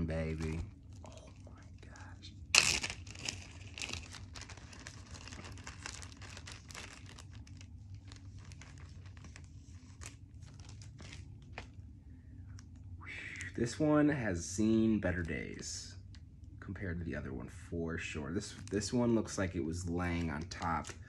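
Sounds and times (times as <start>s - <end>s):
foil wrapper rustling: 0.0s - 11.7s, 18.4s - 21.0s
plastic bag crinkling: 0.0s - 11.7s, 18.4s - 21.0s.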